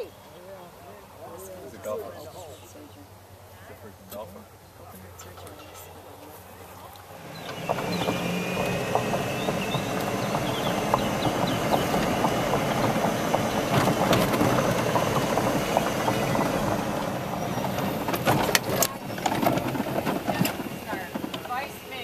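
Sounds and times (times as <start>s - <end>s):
golf cart running: 0.0s - 22.0s
light rattling: 4.0s - 22.0s
sharp knocks: 7.4s - 21.6s.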